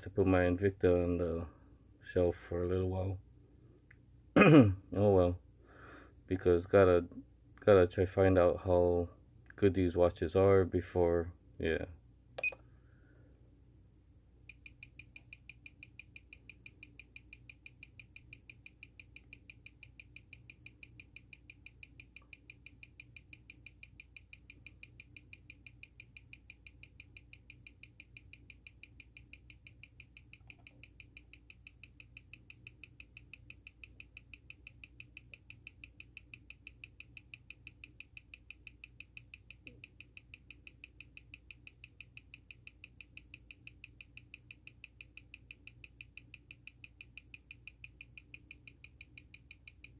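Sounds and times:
steady low hum: 0.0 - 49.9
watch ticking fast: 14.5 - 49.9.

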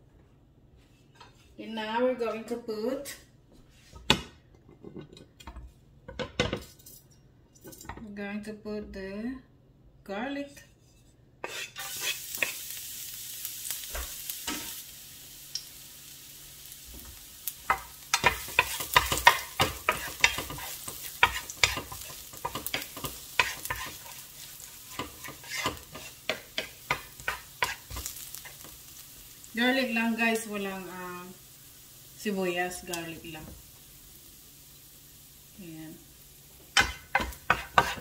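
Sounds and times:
garlic sizzling in oil: 11.4 - 38.0
wooden spatula knocking a pan: 17.7 - 23.9, 36.8 - 38.0.

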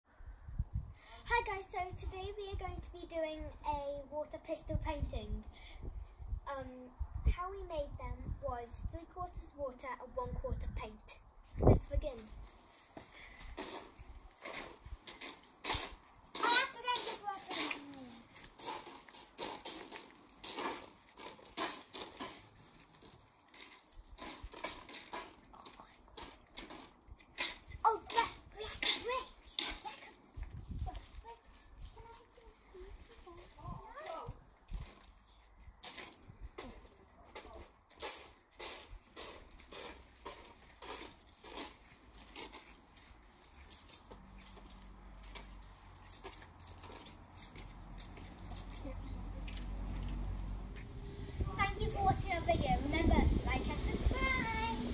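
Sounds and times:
toy water pistols squirting: 13.3 - 30.2, 35.8 - 48.8
water pistols spraying paint: 13.3 - 30.2, 47.8 - 54.9.

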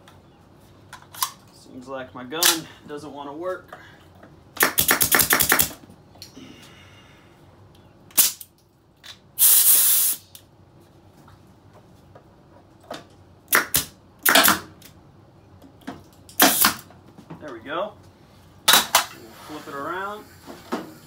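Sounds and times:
staple gun shots: 4.6 - 5.8, 13.5 - 14.7, 16.4 - 16.8
compressed air hiss: 9.4 - 10.4.

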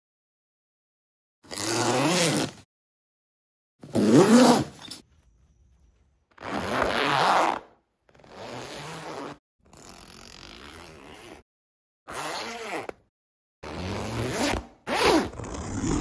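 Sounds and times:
zippers being zipped: 1.4 - 2.7, 3.8 - 5.0, 6.3 - 11.4, 12.1 - 16.0.

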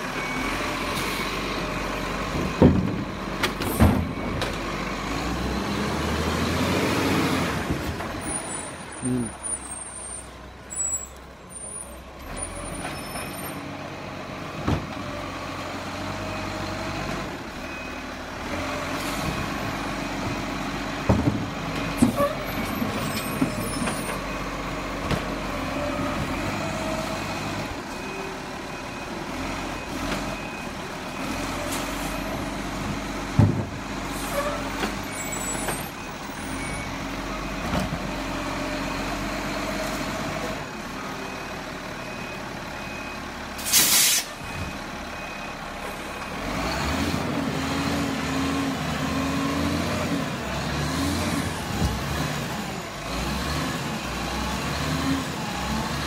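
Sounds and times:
air brakes hissing: 43.6 - 44.4.

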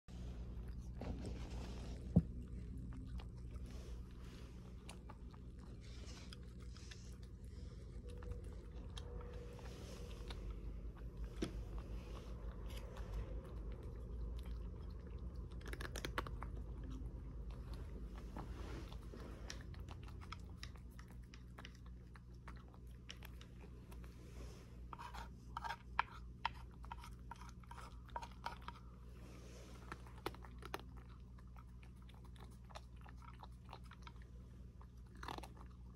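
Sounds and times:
cat chewing dry kibble: 0.1 - 35.9.

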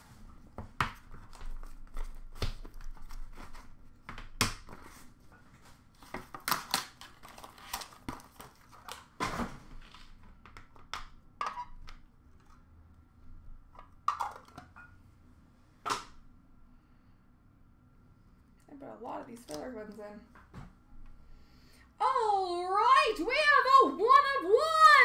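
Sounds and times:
cardboard and paper packaging rustling: 0.6 - 10.4.

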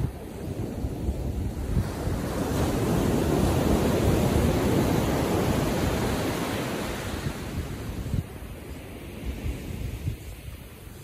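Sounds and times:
ocean wave breaking: 0.0 - 11.0
wind buffeting microphone: 0.0 - 11.0.

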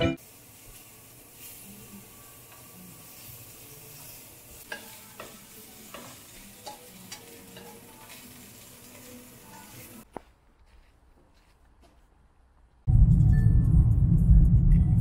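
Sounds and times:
food sizzling: 0.0 - 10.1.

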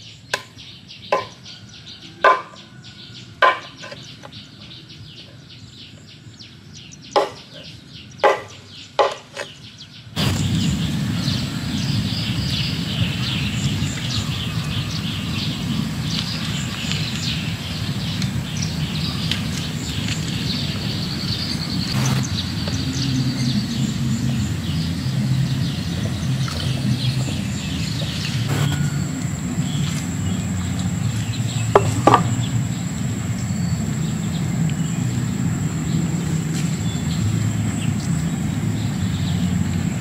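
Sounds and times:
small birds chirping: 0.0 - 40.0
high insect-like drone: 10.2 - 39.7
steady low rumble: 10.2 - 40.0.

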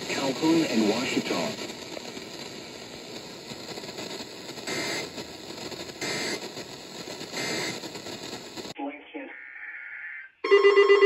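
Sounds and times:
radio static hiss: 0.0 - 10.4
short data bursts: 3.2 - 8.8.

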